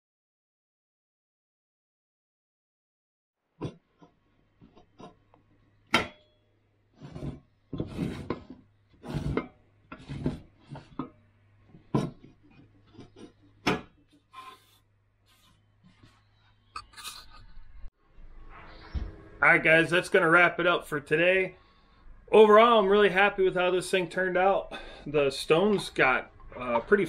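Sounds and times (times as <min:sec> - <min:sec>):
stone scraping against metal: 0:07.0 - 0:11.1, 0:11.8 - 0:15.5.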